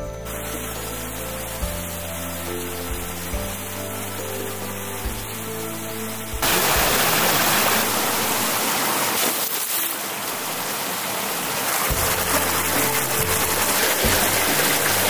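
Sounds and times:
soft background music: 0.0 - 15.0
stream water rushing and splashing: 0.0 - 15.0.

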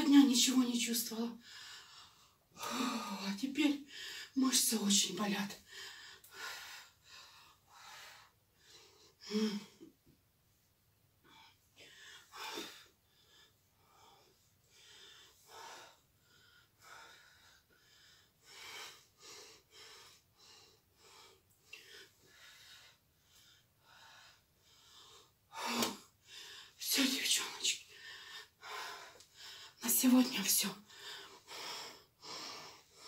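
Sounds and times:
woman breathing hard: 5.6 - 9.9, 11.2 - 26.8, 30.9 - 33.0.

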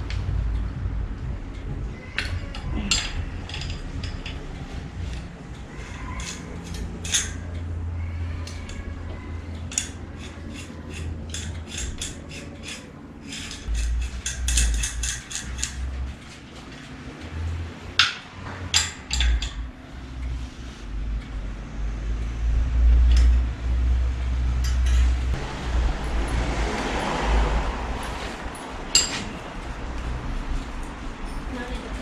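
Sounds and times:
small metal clicks and clinks: 2.2 - 7.7, 9.5 - 15.9, 18.0 - 19.7.

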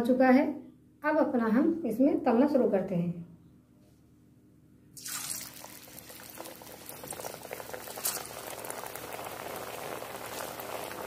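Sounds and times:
oil popping: 5.0 - 11.0
snack sizzling in hot oil: 5.0 - 11.0.

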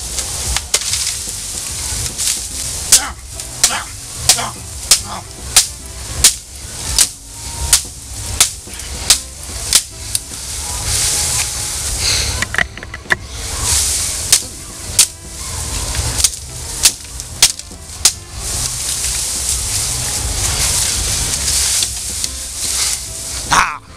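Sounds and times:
bamboo leaves rustling: 0.0 - 23.9
knife chopping bamboo: 0.5 - 10.4, 14.3 - 15.3, 16.0 - 19.6.

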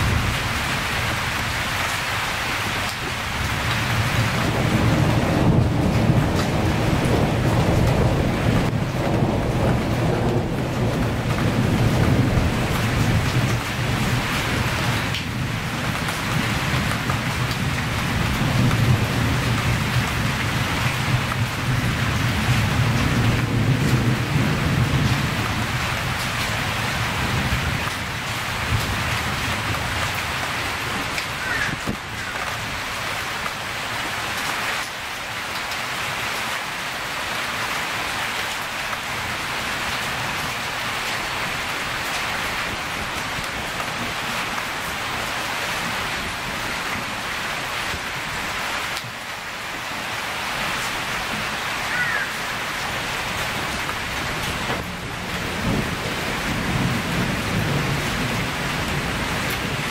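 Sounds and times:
storm rain: 0.0 - 59.9
distant thunder rumble: 3.2 - 33.6, 51.2 - 59.9.

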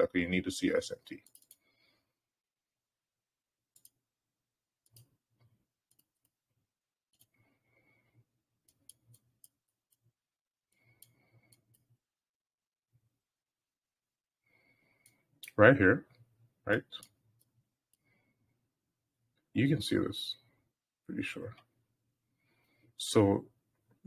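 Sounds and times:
computer mouse clicking: 1.1 - 1.7, 3.7 - 4.0, 4.8 - 6.3, 8.6 - 10.0, 10.7 - 11.9.

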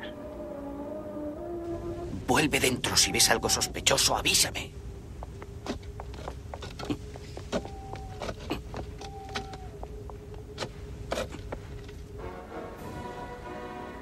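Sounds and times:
low held drone note: 0.0 - 2.4
higher held notes: 0.0 - 3.8.

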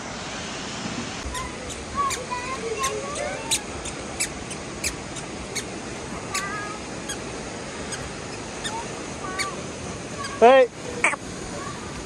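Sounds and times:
waterfall rushing: 0.0 - 12.0
faint squeaks: 1.2 - 5.7.

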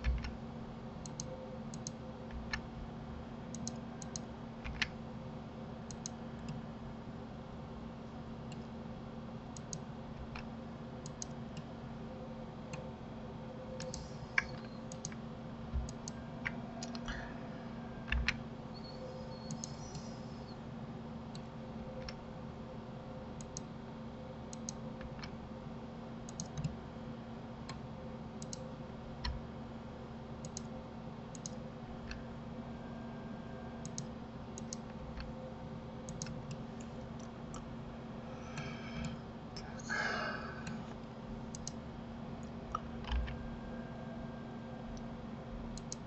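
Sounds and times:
steady low hum: 0.0 - 46.0
computer mouse clicks: 1.0 - 2.6, 3.5 - 5.0, 5.9 - 6.6, 9.5 - 11.7, 13.8 - 17.2, 18.0 - 20.6, 23.4 - 23.7, 24.5 - 25.4, 26.3 - 26.8, 28.4 - 28.6, 30.4 - 30.7, 31.3 - 32.2, 33.8 - 35.3, 36.1 - 37.7, 40.6 - 41.8, 45.8 - 46.0
brief squeaky whine: 18.7 - 20.6.

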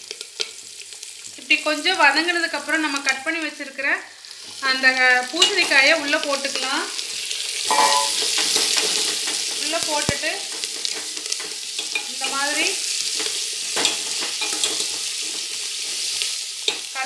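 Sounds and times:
vegetables sizzling in oil: 0.0 - 17.0
spoon scraping and clinking pot: 7.7 - 8.8, 13.2 - 15.0.

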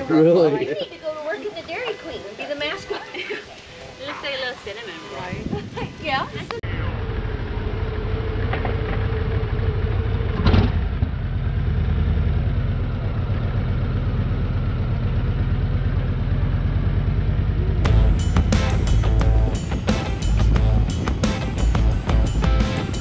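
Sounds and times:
motorcycle engine running: 6.6 - 23.0.

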